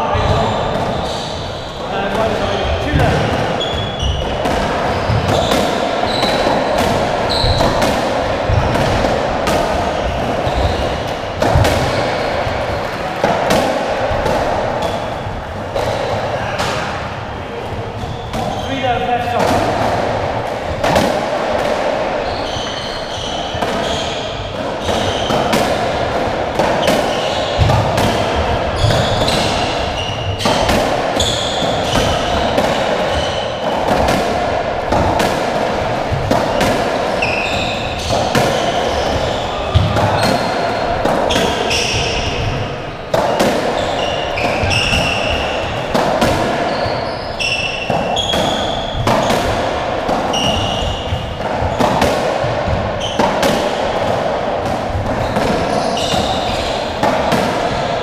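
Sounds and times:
shoes squeaking on wooden floor: 0.0 - 13.1, 17.7 - 18.9, 22.2 - 26.0, 26.6 - 33.9, 36.1 - 49.3, 50.2 - 54.1, 55.0 - 58.0
ball struck by rackets: 2.9 - 17.1, 19.4 - 22.1, 23.1 - 57.9.

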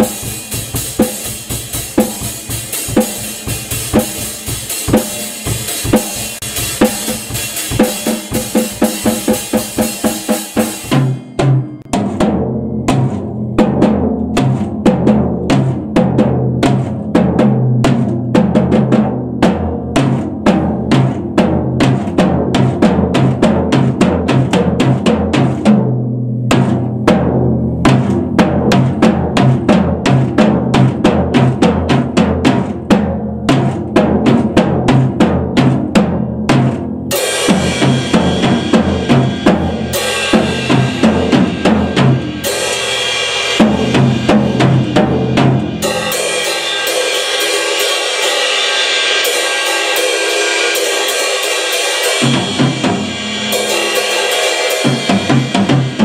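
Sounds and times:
drum kit beat: 0.0 - 56.0
cymbal wash: 45.8 - 56.0.

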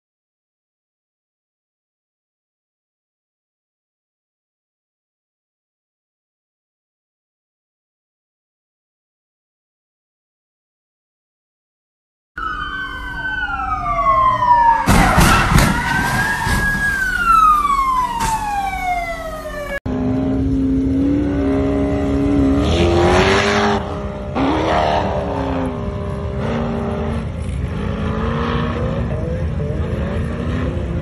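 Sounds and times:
siren wailing: 12.4 - 30.7
buggy engine revving: 19.9 - 31.0.

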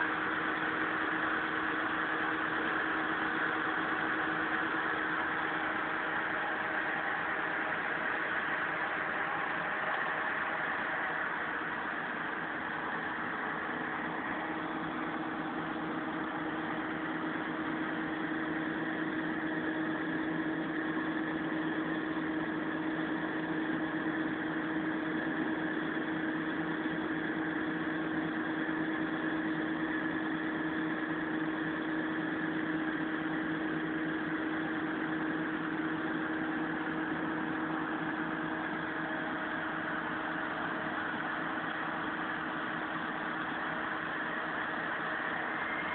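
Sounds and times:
crane engine humming: 0.0 - 45.9.

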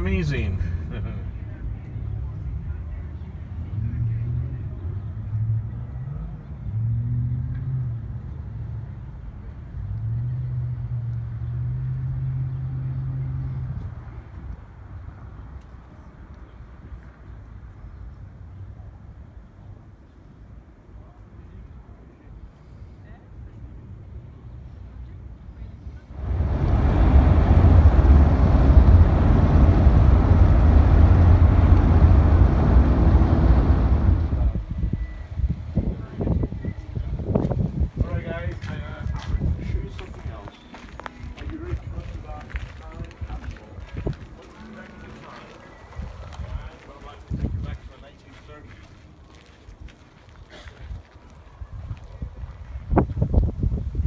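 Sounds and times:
car traffic driving past: 0.0 - 15.4, 25.8 - 37.0.

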